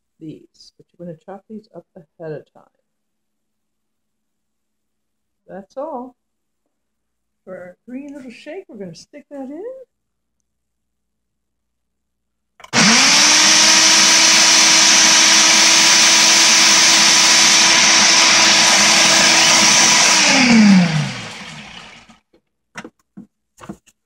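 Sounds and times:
blender running: 0:12.6 - 0:22.2.

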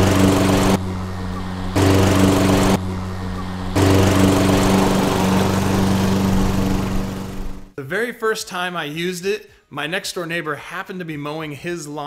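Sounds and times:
electric lawn mower humming: 0:00.0 - 0:07.7.

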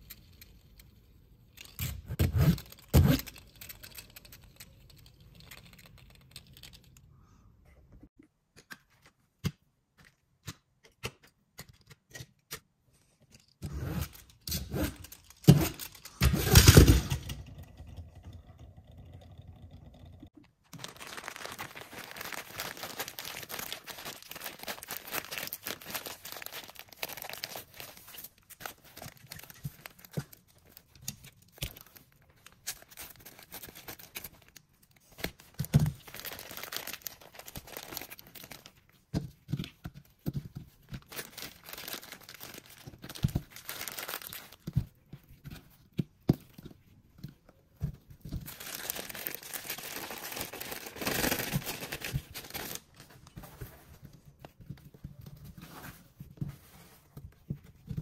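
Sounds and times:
plastic crinkling and rustling: 0:14.1 - 0:17.3, 0:20.5 - 0:58.0.

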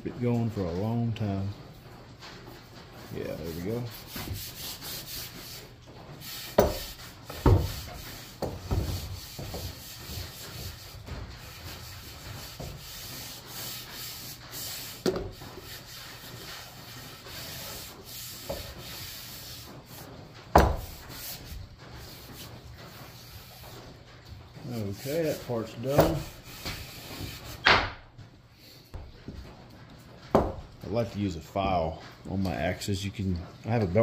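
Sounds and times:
hand rubbing wooden handle: 0:02.4 - 0:28.0.

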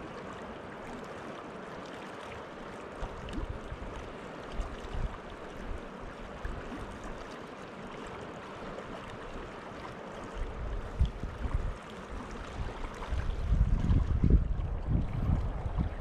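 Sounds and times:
river water flowing: 0:00.0 - 0:16.0
wind buffeting microphone: 0:10.5 - 0:16.0.

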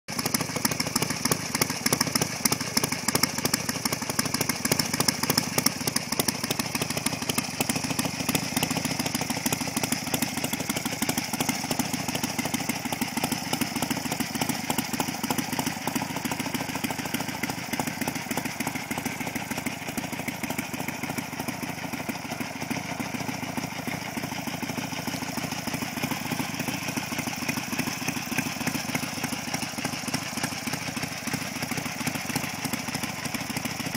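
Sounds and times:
motorcycle engine idling: 0:00.1 - 0:33.9.

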